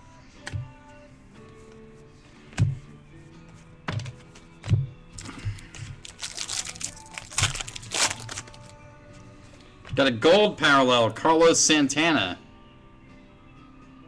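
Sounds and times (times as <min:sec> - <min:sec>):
faint background music: 0:00.0 - 0:14.0
cards knocking on a table: 0:03.9 - 0:04.9
foil wrapper crinkling and tearing: 0:05.2 - 0:08.7.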